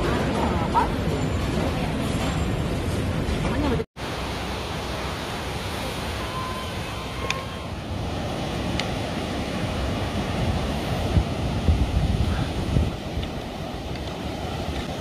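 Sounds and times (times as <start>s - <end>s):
surf on a beach: 0.0s - 15.0s
wind buffeting microphone: 7.2s - 15.0s.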